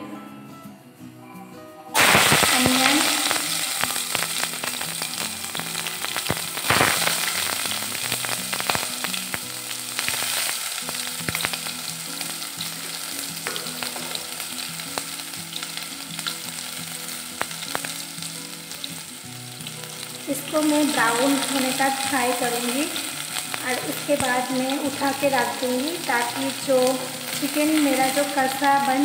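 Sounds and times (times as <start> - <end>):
oil spitting: 2.0 - 11.7
onions sizzling in hot oil: 2.0 - 29.0.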